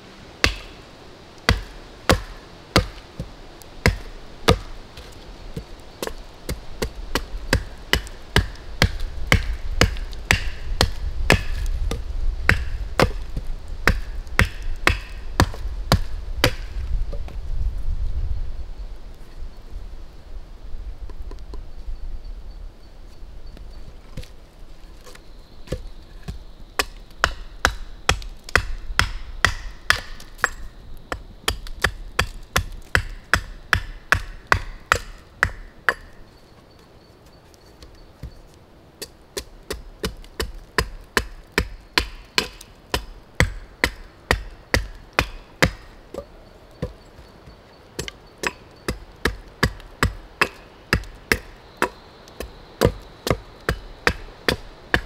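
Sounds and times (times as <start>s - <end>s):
blade chopping into wood: 1.5s - 3.0s, 3.8s - 16.8s, 26.8s - 30.6s, 39.0s - 45.9s, 48.0s - 55.0s.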